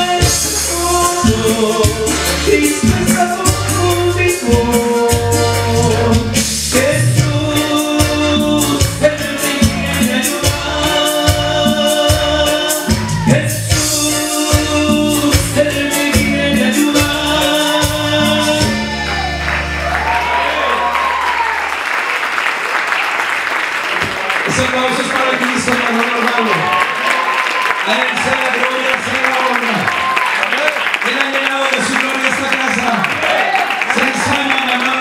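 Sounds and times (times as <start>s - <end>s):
man singing into a microphone: 0.0s - 19.1s
backing music with beat and bass: 0.0s - 21.3s
congregation applauding: 18.6s - 35.0s.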